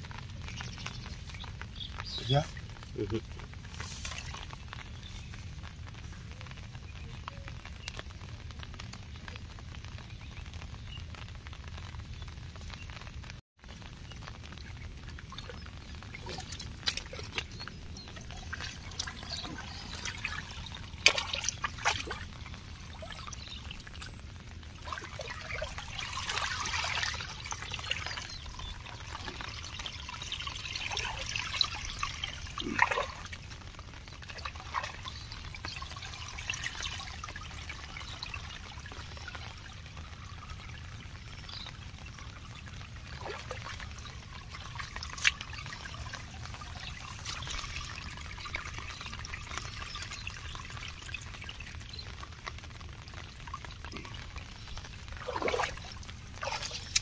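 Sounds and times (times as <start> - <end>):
water trickling in channel: 0.0 - 13.0, 13.7 - 57.0
sharp splashes: 14.2 - 57.0
hands scooping wet mud: 16.1 - 24.0, 55.2 - 57.0.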